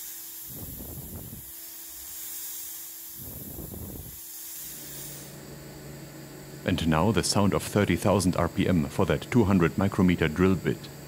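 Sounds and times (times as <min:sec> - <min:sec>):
mist coolant spraying hiss: 0:00.0 - 0:05.4
milling spindle hum: 0:00.0 - 0:05.6.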